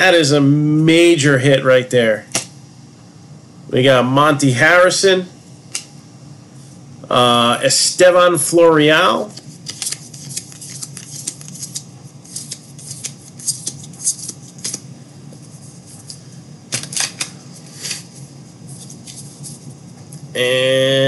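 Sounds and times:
cards flicking and swishing: 9.3 - 14.9.

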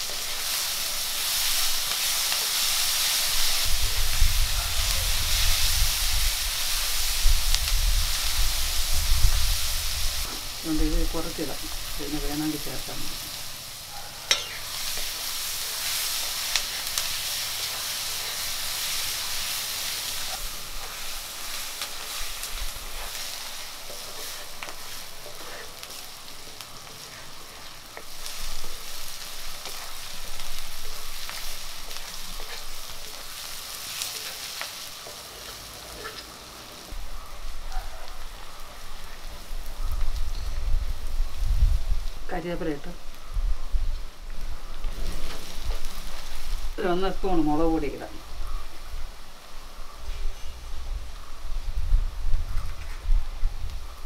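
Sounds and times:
shallots sizzling in hot oil: 0.0 - 54.0
wooden spatula scraping wok: 11.3 - 39.5, 44.8 - 46.6.

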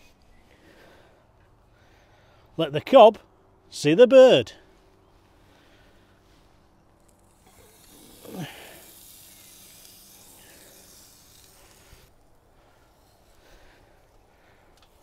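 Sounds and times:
chicken sizzling on grill: 7.3 - 12.1.

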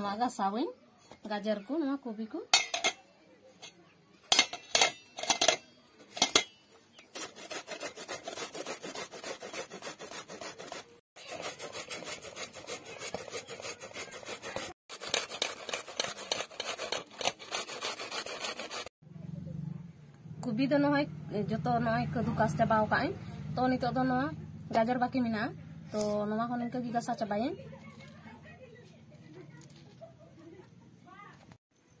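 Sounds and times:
cabbage rasping on a grater: 7.0 - 18.9.

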